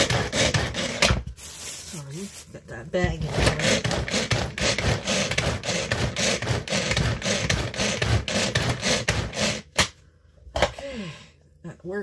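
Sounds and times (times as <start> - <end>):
food chopper rattling and scraping: 0.0 - 1.3, 3.2 - 9.8.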